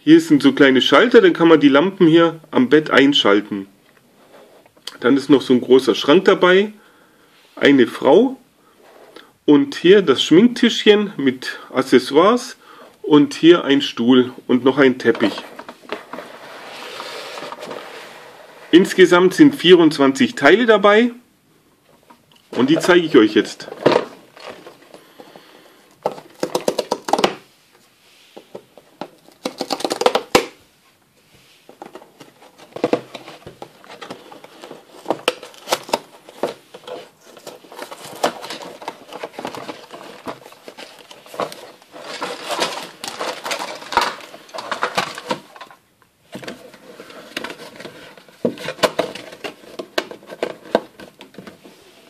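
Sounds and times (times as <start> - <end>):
cardboard box being opened: 31.8 - 45.4
plastic bags rustling: 31.8 - 51.6.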